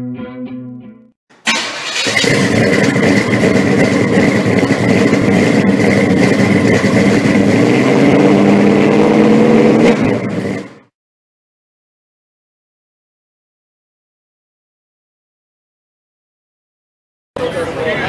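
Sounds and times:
car engine revving roughly: 1.5 - 10.9.

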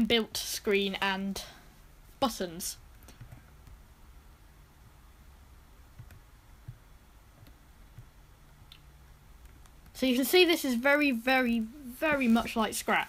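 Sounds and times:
computer mouse clicks: 2.9 - 3.8, 6.0 - 6.8
soft low thumps: 5.9 - 10.0.

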